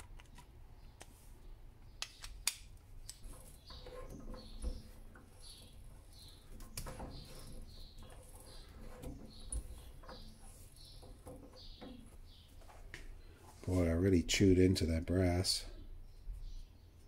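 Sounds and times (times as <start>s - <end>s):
hand tap squeaking in metal: 3.0s - 12.4s.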